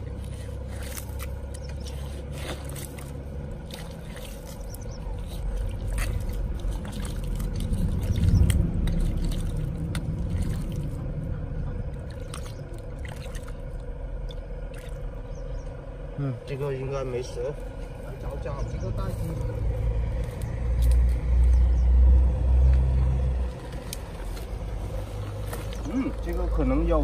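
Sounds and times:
stick scraping in mud: 0:00.0 - 0:10.9
wet squelching: 0:00.0 - 0:15.6
low rumble: 0:00.0 - 0:27.0
trickling water: 0:00.0 - 0:27.0.

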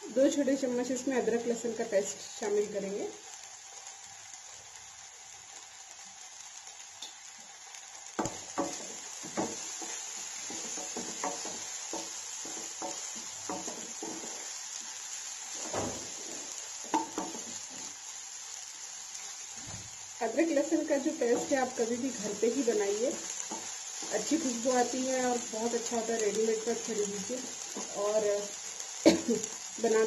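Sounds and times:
onions sizzling in oil: 0:00.0 - 0:30.0
spatula scraping a pan: 0:08.2 - 0:18.0.

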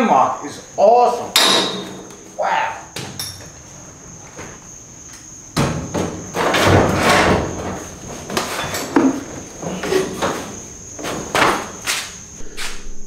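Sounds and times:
harness hardware clanking: 0:01.3 - 0:02.3.

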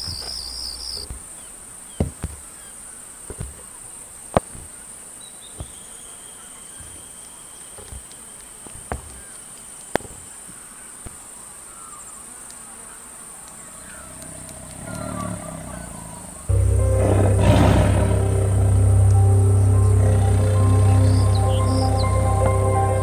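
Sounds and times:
insects chirring: 0:00.0 - 0:23.0.

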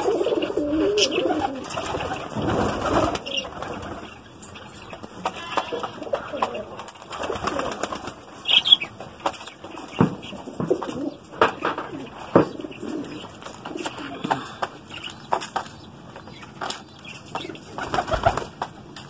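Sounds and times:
wings flapping: 0:00.0 - 0:12.1, 0:16.5 - 0:19.0
pigeons cooing: 0:00.0 - 0:15.6, 0:16.4 - 0:19.0.

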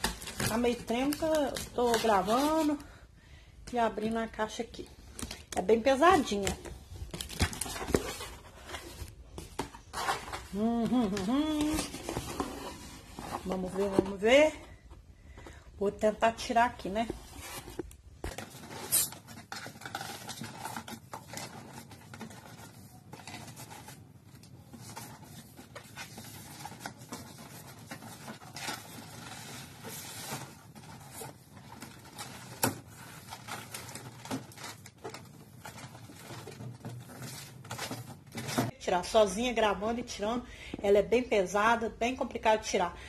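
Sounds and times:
cardboard scraping and rubbing: 0:11.5 - 0:14.4.

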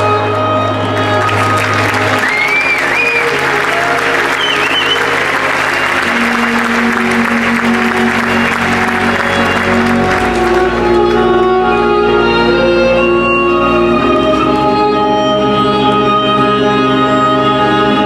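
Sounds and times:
background music: 0:00.0 - 0:18.0
audience applause: 0:00.8 - 0:11.3
whistle from audience: 0:01.3 - 0:10.2.

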